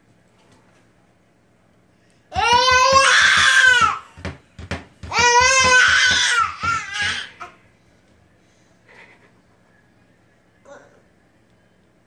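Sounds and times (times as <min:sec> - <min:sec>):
baby crying: 0:02.3 - 0:04.0, 0:05.1 - 0:07.6.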